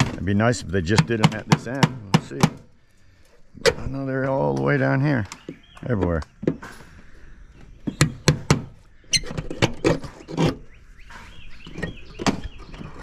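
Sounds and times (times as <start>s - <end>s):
sharp knocks and clatter: 0.0s - 2.7s, 7.8s - 10.6s.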